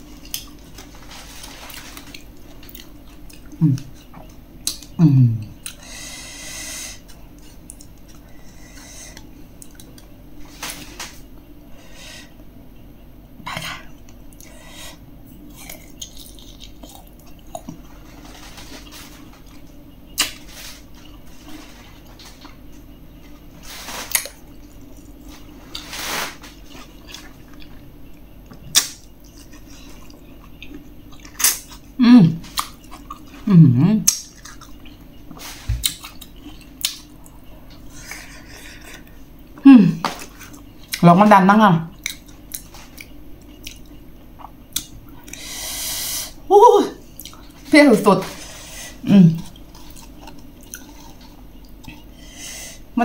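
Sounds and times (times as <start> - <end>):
person humming: 3.6 - 4.0, 5.0 - 5.6, 32.0 - 32.4, 33.4 - 34.0, 39.6 - 40.0, 49.0 - 49.4.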